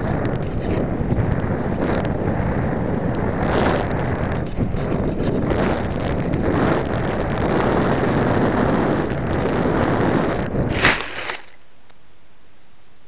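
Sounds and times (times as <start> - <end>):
air rushing over microphone: 0.0 - 11.6
faint steady hiss: 10.4 - 13.0
plane crashing into dry grass: 10.6 - 11.6.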